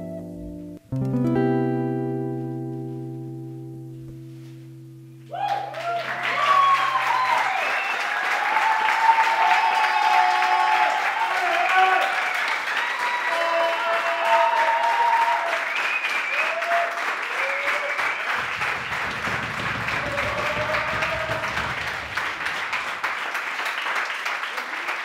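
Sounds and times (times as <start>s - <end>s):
audience applauding: 5.4s - 25.0s.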